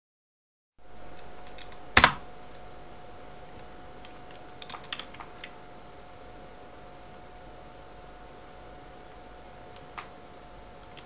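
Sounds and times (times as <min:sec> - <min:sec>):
faint steady hum: 0:00.8 - 0:11.0
keyboard keystrokes: 0:01.2 - 0:02.2, 0:04.0 - 0:05.6, 0:10.8 - 0:11.0.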